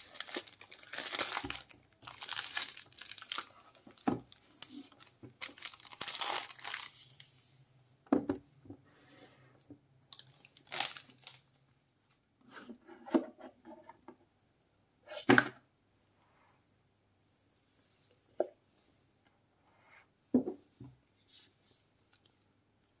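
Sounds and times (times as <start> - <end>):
cellophane crinkling and tearing: 0.0 - 7.2, 10.1 - 11.6
rustles and scrapes: 20.7 - 22.4.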